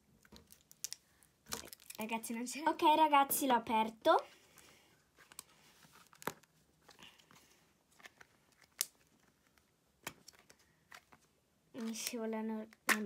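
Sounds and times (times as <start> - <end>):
plastic tub clicks and crinkling: 0.2 - 2.0, 8.0 - 13.0.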